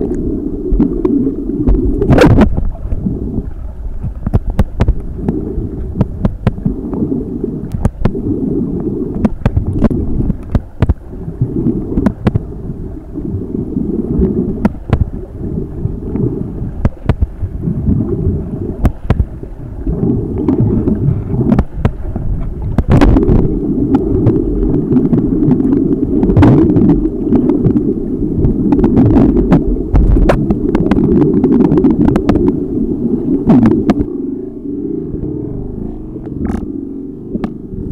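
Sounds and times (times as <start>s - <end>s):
underwater rushing and sloshing: 0.0s - 37.9s
sharp clicks and knocks: 9.2s - 11.0s.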